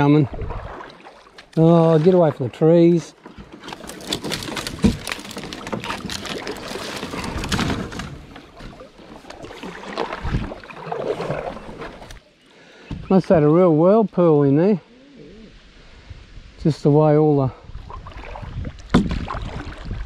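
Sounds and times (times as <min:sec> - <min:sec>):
water splashing against kayak: 0:00.0 - 0:12.2, 0:17.7 - 0:20.0
small crackles and knocks: 0:03.3 - 0:09.4.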